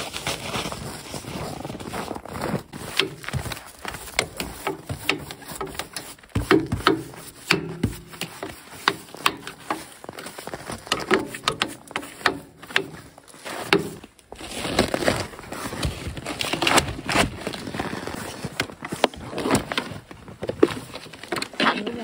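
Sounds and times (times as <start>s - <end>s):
brush sweeping snow: 0.0s - 16.5s
objects knocking on wooden deck: 4.1s - 8.4s.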